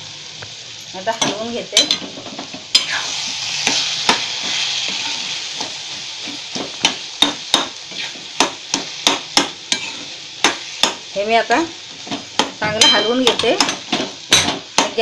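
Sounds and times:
food sizzling in oil: 0.0 - 15.0
metal spoon scraping a pan: 1.1 - 11.0.

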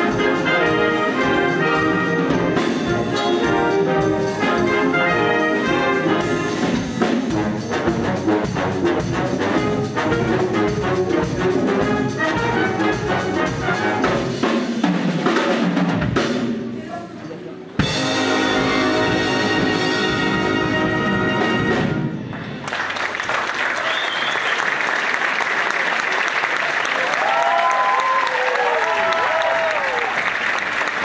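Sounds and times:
wind band playing: 0.0 - 16.6, 17.8 - 22.7.

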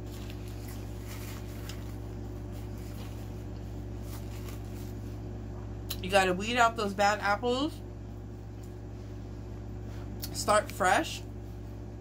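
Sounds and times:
paper napkin rustling: 0.0 - 5.4
low electrical hum: 0.0 - 12.0.

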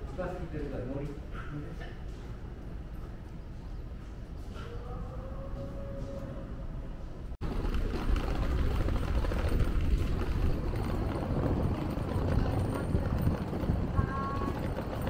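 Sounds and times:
suitcase wheels rattling on bricks: 7.4 - 15.0.

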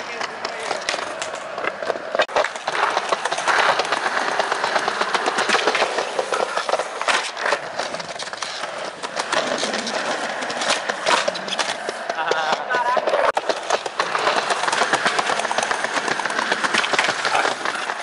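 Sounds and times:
skateboard clicks and knocks: 0.0 - 18.0
skateboard wheels rolling on concrete: 0.0 - 18.0
skateboard grinding on ledge: 0.1 - 18.0.

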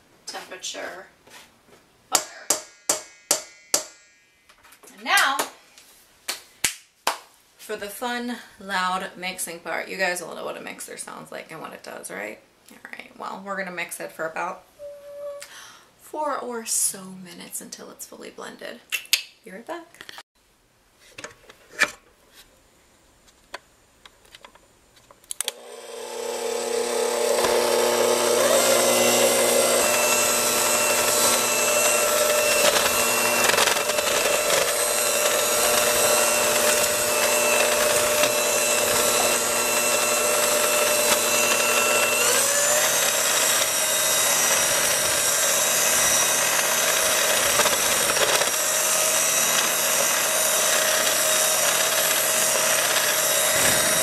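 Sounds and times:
mixer clicks: 25.3 - 54.0
stand mixer motor running: 25.5 - 54.0.

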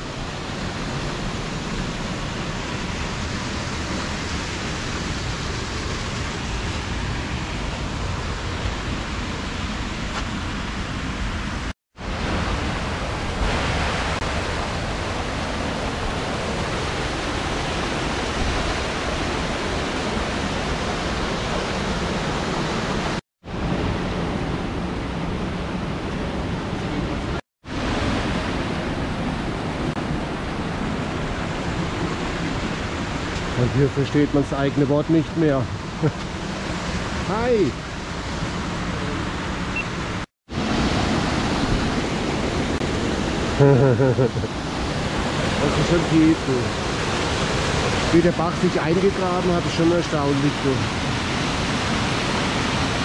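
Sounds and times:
waterfall rushing: 12.0 - 23.2, 25.7 - 53.0.

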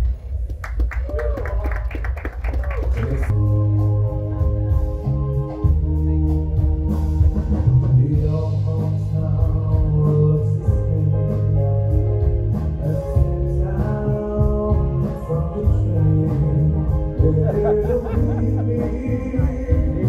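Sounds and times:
pop-rock band playing: 3.3 - 20.0
person singing: 7.6 - 11.7, 12.8 - 20.0.

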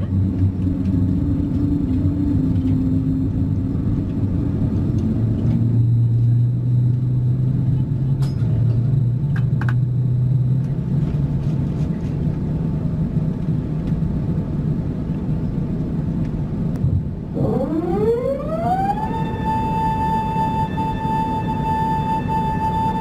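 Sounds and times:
jet engine spooling up whine: 0.0 - 8.1, 16.8 - 23.0
low cabin hum: 0.0 - 23.0.

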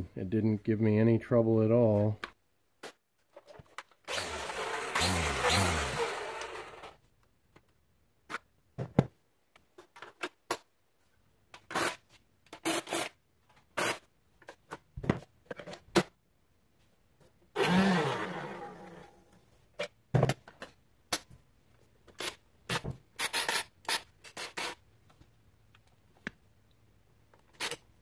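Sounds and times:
blower motor starting: 4.1 - 7.0, 17.6 - 19.2
string trimmer motor spinning down: 4.1 - 7.0, 17.6 - 19.2.

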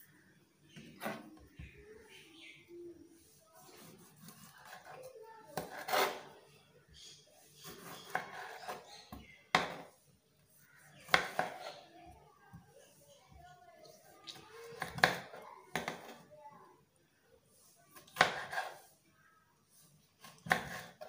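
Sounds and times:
knife slicing tomato: 3.7 - 6.4, 7.6 - 9.9, 11.0 - 11.8, 17.9 - 18.8, 20.2 - 21.0.

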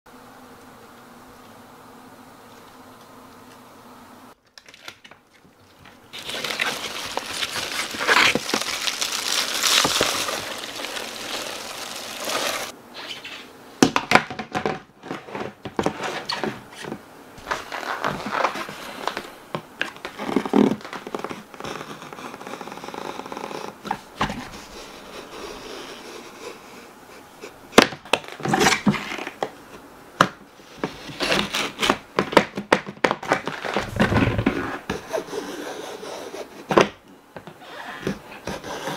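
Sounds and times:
plastic scraping: 4.6 - 12.7, 14.3 - 24.5, 30.7 - 35.2
utility knife cutting plastic: 6.2 - 12.7.

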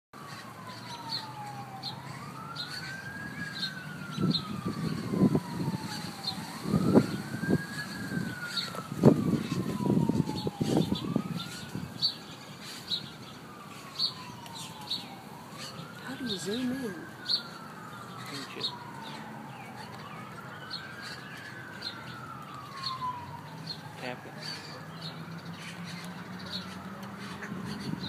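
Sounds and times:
birds chirping faintly: 0.2 - 28.0
fainter second siren: 0.2 - 28.0
warning siren wailing: 0.2 - 28.0
wind buffeting microphone: 0.5 - 28.0.

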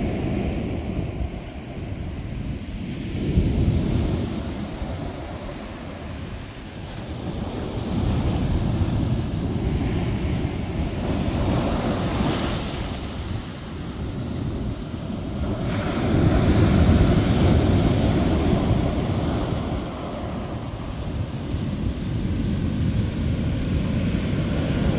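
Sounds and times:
ocean surf breaking on beach: 0.0 - 24.9
wind buffeting microphone: 0.0 - 24.9.

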